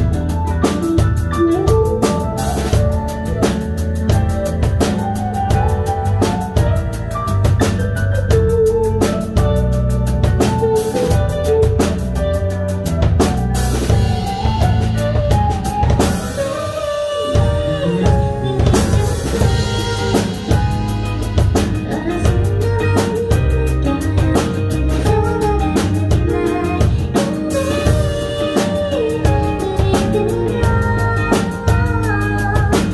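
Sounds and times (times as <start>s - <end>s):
drum kit beat: 0.0s - 32.9s
live pop band: 0.0s - 32.9s
woman singing: 16.8s - 32.9s.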